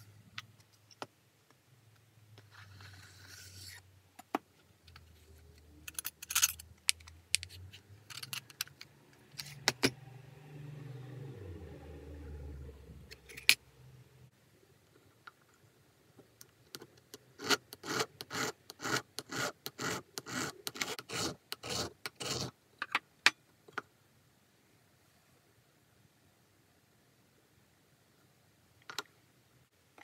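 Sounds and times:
file rasping on metal: 0:17.4 - 0:22.5.

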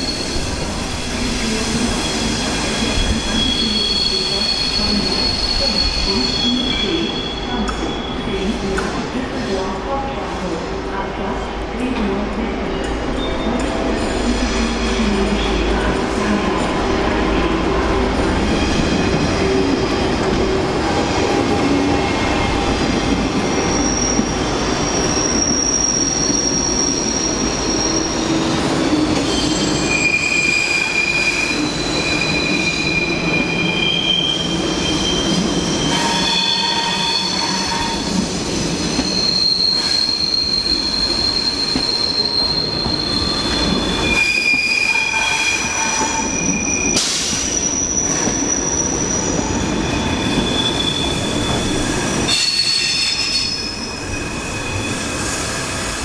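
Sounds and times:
train wheels squealing: 0:00.0 - 0:08.8, 0:21.2 - 0:56.0.

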